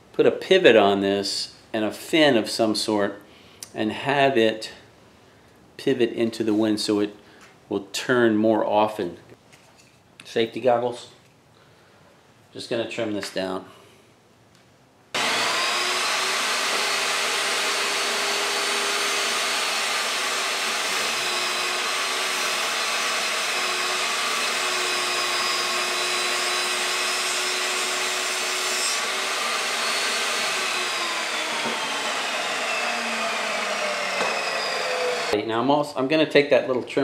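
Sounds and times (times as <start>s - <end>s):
table saw motor whine: 15.2s - 35.4s.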